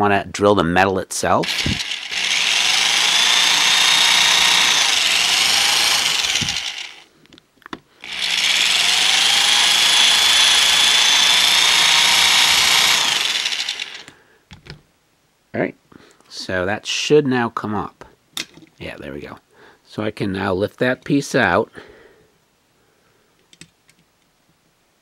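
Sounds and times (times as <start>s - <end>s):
power drill boring plastic: 1.4s - 7.1s, 8.0s - 14.2s.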